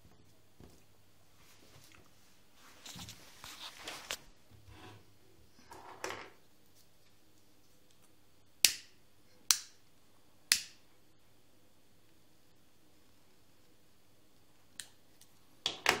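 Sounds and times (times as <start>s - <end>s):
soft rustle: 0.3s - 4.4s.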